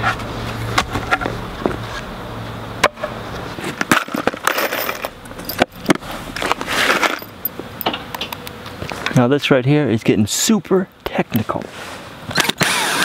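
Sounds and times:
handling knocks and crunches: 2.9 - 8.1
metal screws rattling: 6.9 - 7.9.

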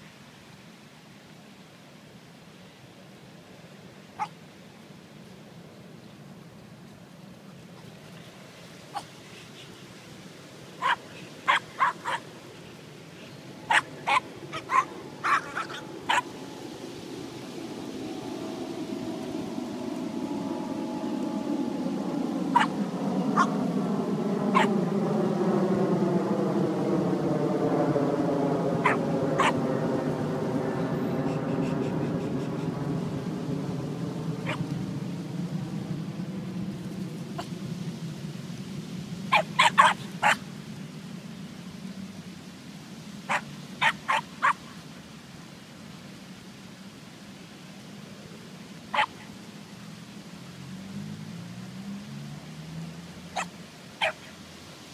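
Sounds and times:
small dogs yelping: 4.2 - 4.4, 10.8 - 12.3, 13.5 - 16.4, 22.4 - 23.6, 24.5 - 24.8, 28.8 - 29.7, 34.4 - 34.8, 39.3 - 40.4, 43.3 - 44.6, 48.9 - 49.3, 53.3 - 54.4
steady tonal hum: 12.5 - 38.8.

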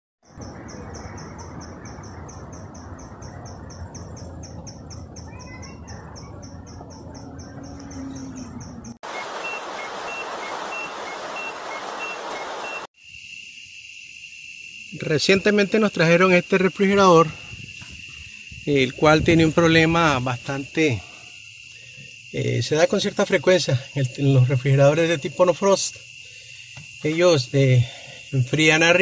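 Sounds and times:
insect trill: 0.2 - 29.0
insects chirping: 0.2 - 29.0
steady rushing noise: 9.0 - 12.9.

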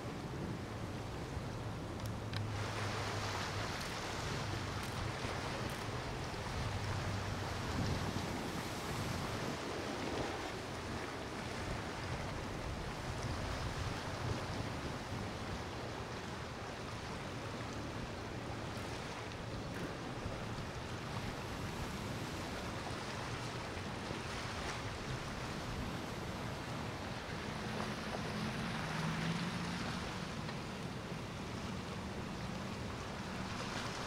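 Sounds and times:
wind on microphone: 0.0 - 16.6
boat engine drone: 0.0 - 34.0.

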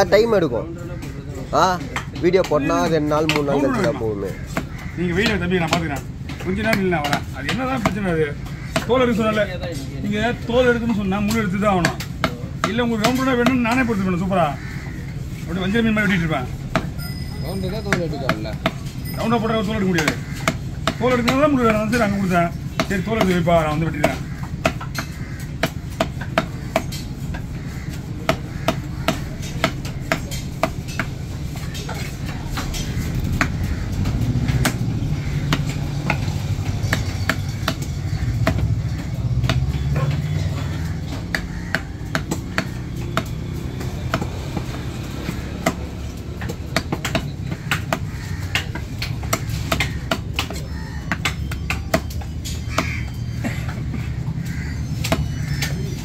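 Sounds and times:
cleaver chopping on wooden block: 3.3 - 9.3, 19.6 - 56.0
low background rumble: 20.2 - 39.4.

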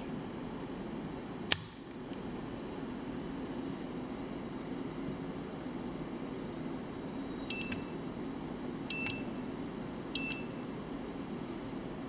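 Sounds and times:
multimeter short high beeps: 7.4 - 7.9, 8.9 - 9.4, 10.2 - 10.6.

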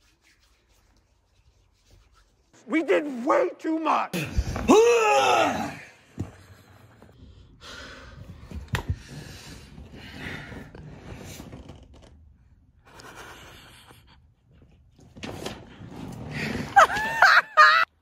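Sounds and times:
man breathing heavily: 6.8 - 11.4.

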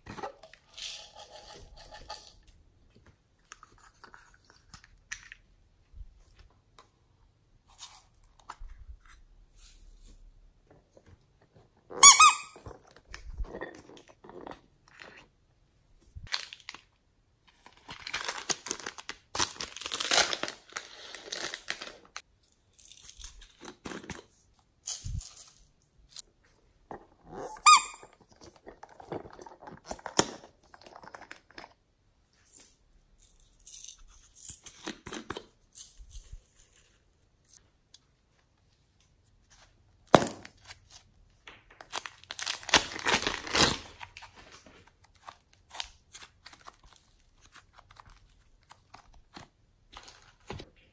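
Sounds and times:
loud plastic squeaks: 11.9 - 12.8, 27.3 - 28.2
plastic crinkling: 16.2 - 24.1, 41.7 - 50.7.

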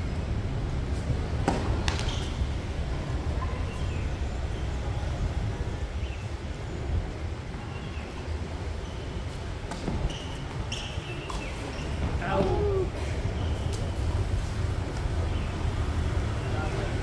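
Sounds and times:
tennis ball hits: 1.4 - 2.4.

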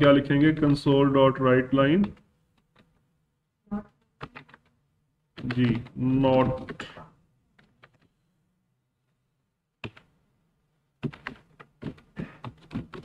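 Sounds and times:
computer keyboard typing: 1.8 - 3.0, 3.8 - 4.7, 5.4 - 7.0, 7.6 - 8.1, 9.8 - 10.1, 11.0 - 13.0.

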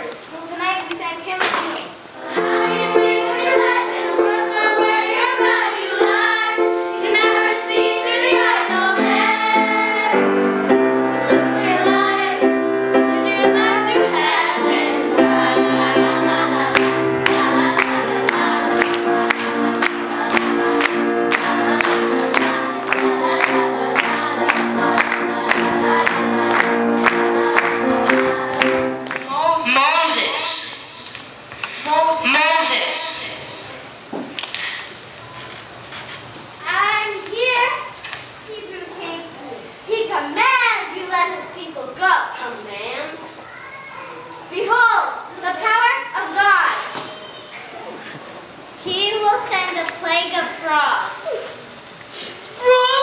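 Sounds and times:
music of sustained chords: 2.2 - 29.4
children singing together: 2.2 - 29.7
steady beat: 10.7 - 29.7.

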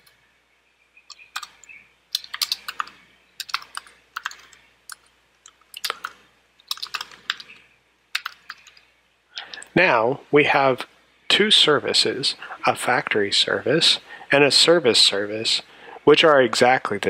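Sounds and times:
typing on a computer keyboard: 1.1 - 7.6, 8.2 - 8.8.

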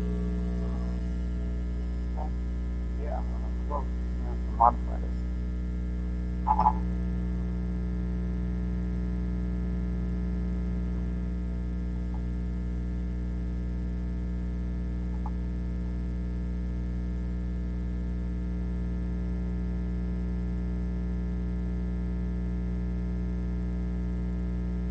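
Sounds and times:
electrical mains hum: 0.0 - 24.9
faint ticks: 11.8 - 12.6, 15.0 - 16.2.

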